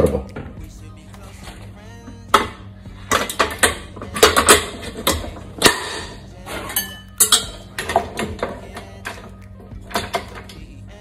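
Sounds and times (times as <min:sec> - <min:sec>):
kitchen equipment clicking and clinking: 0:02.4 - 0:09.3, 0:09.9 - 0:10.6.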